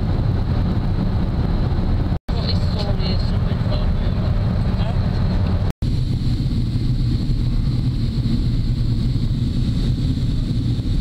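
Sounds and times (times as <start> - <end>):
airplane engine and airflow rumble: 0.0 - 11.0.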